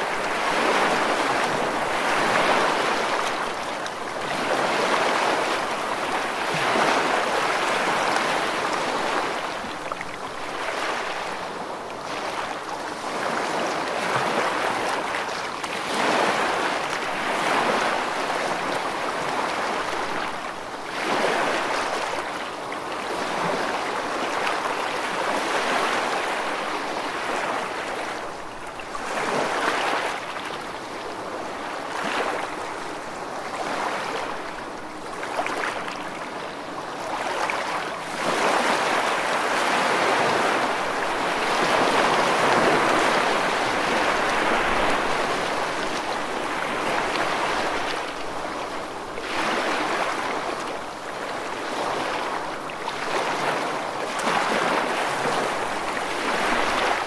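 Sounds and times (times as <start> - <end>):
waves washing in: 0.0 - 57.0.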